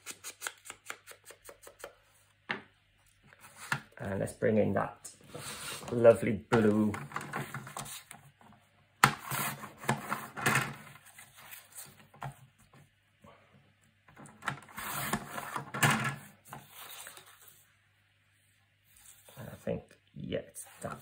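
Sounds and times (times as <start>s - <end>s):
paper sliding and rustling: 9.2s - 12.0s, 14.5s - 17.7s.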